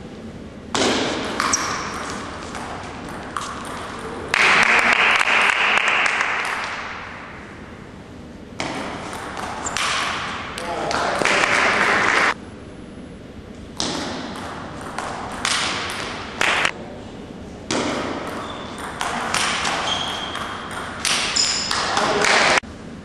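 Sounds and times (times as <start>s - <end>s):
table tennis ball hits: 0.7s - 4.7s, 8.6s - 12.3s, 13.8s - 16.7s, 17.7s - 22.6s.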